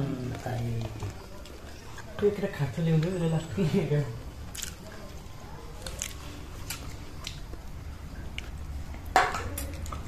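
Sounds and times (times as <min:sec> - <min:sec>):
small eating clicks: 0:04.3 - 0:10.0.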